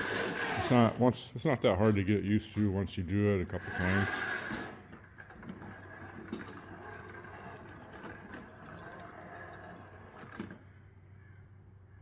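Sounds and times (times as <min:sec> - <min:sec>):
electric motors whining: 0:00.0 - 0:01.0, 0:03.4 - 0:10.6.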